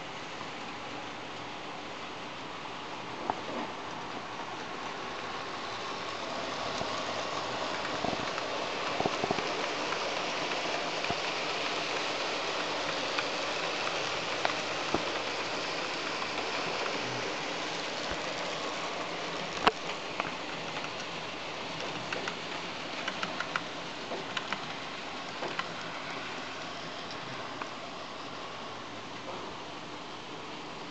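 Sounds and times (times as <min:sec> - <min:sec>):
hiss of model train wheels: 0:04.9 - 0:28.5
sharp track clicks: 0:21.8 - 0:24.8.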